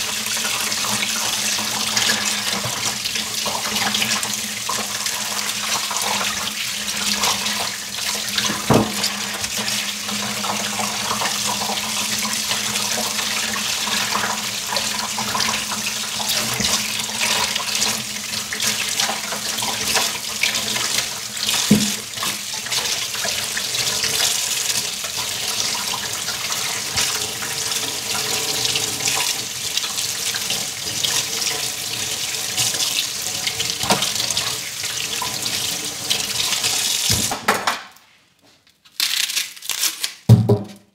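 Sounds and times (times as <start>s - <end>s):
tap running into steel sink: 8.4s - 9.1s, 21.6s - 22.1s, 33.8s - 34.2s
sharp knocks: 21.7s - 22.0s, 40.3s - 40.9s.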